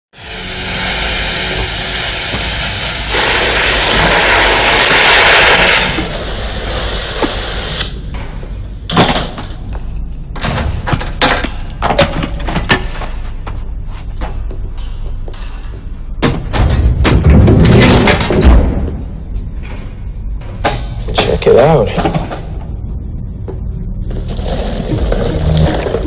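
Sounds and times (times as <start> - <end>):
loud hiss: 0.2 - 8.0
metal clanks and knocks: 8.1 - 22.8.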